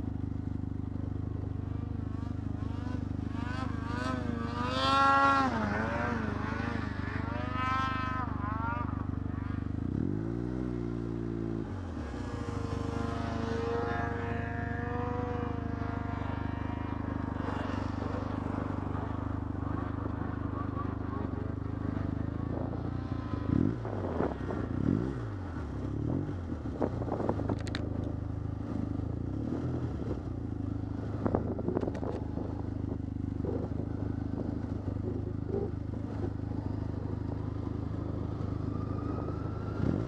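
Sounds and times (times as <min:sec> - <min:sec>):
snowmobile engine droning: 0:00.0 - 0:40.0
snowmobile engines revving: 0:01.6 - 0:11.0, 0:11.6 - 0:27.8.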